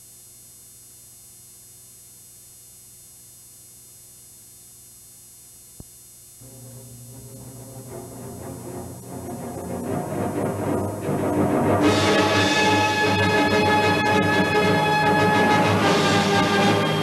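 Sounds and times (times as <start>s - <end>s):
low electrical hum: 0.0s - 11.9s
faint high whine: 0.0s - 15.2s
low sustained music notes: 6.4s - 17.0s.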